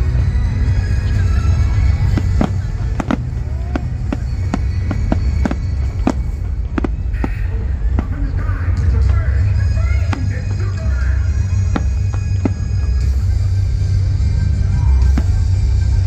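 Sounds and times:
low rumble: 0.0 - 16.0
music playing: 0.0 - 16.0
fireworks bangs and cracks: 2.0 - 8.4, 9.9 - 13.0.

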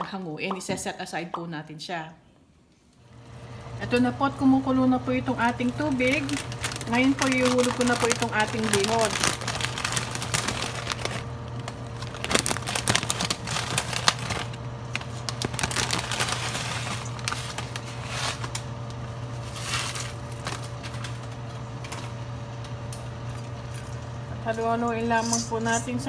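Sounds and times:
steady low hum: 2.2 - 26.0
plastic packaging crinkling: 5.4 - 22.2.

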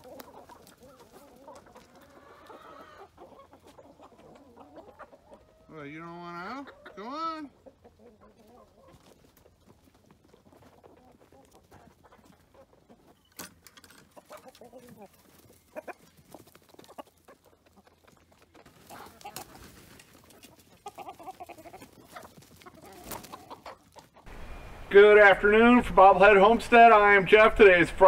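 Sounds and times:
chickens clucking: 0.0 - 28.0.

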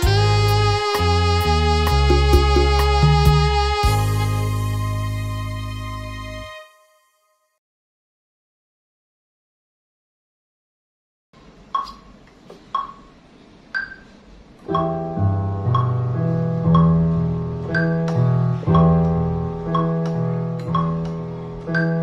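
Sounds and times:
keyboard music: 0.0 - 7.5, 14.7 - 22.0.

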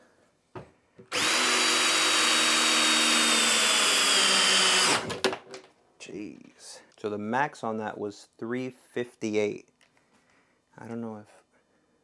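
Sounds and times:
cordless drill motor whine: 1.1 - 5.1.

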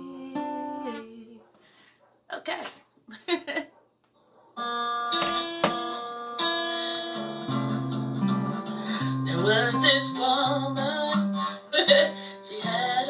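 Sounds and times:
acoustic guitar strummed: 0.0 - 1.2, 4.6 - 13.0.

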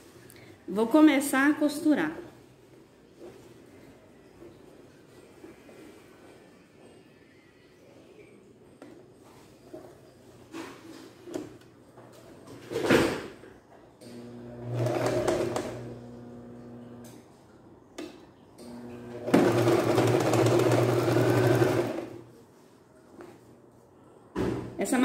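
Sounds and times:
sewing machine stitching: 14.2 - 16.2, 18.8 - 22.2.

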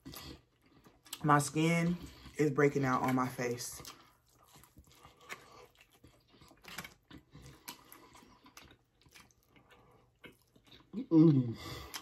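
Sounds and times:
people chewing: 0.0 - 12.0.

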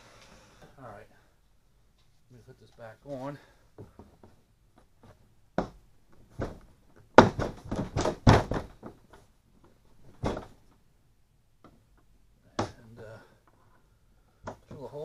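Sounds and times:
plastic hatch knocks and thunks: 5.6 - 9.2, 10.1 - 10.6.

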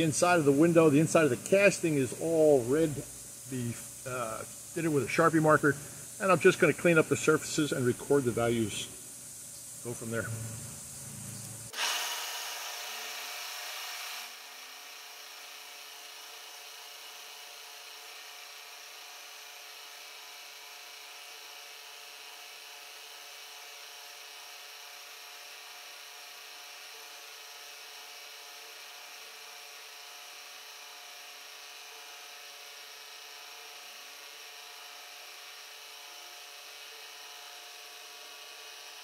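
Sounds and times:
milling machine spindle whine: 0.0 - 21.7, 31.6 - 39.0.

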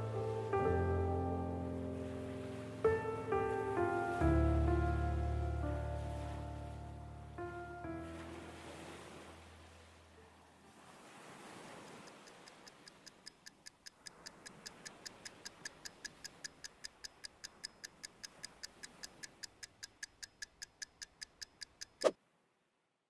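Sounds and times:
alarm clock ticking: 12.0 - 22.1.

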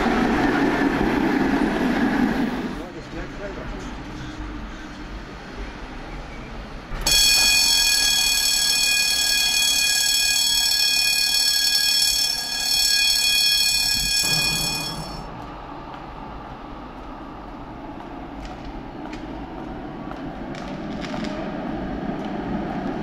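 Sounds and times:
tram passing: 0.0 - 23.0
high-pitched multi-tone squeal: 6.4 - 15.3.

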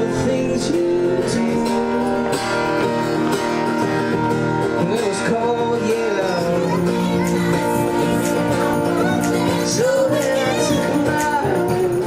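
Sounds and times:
acoustic guitar music: 0.0 - 12.0
person singing: 0.0 - 12.0.

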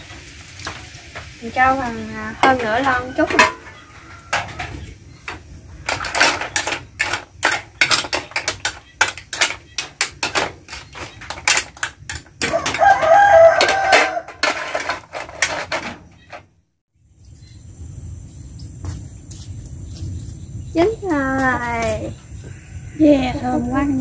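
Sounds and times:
shells clattering in metal wok: 0.0 - 16.4
rooster crowing: 2.6 - 4.9, 12.4 - 14.6, 22.4 - 23.8.

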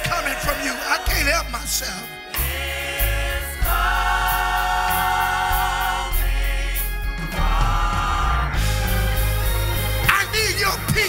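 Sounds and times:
band with bass and beat: 0.0 - 11.0
gospel choir singing: 0.0 - 11.0.

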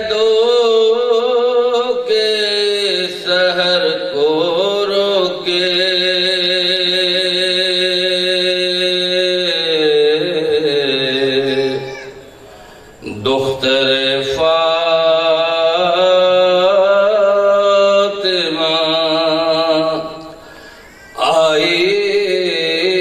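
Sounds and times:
man chanting slow elegy: 0.0 - 20.4, 21.0 - 23.0.

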